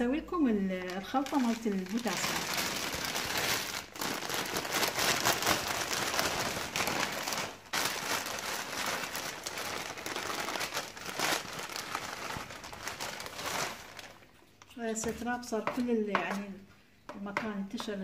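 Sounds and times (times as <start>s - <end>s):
plastic bag crinkling: 0.8s - 14.8s.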